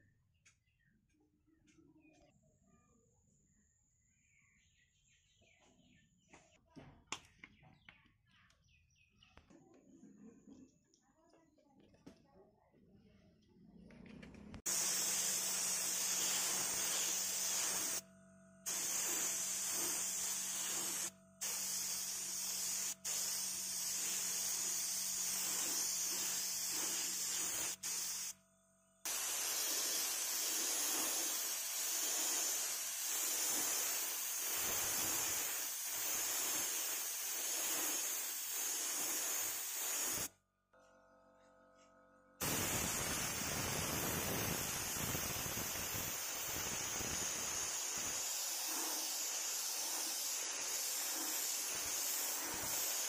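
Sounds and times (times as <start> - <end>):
spray paint hissing: 14.6 - 28.4, 29.0 - 40.3, 42.4 - 53.0.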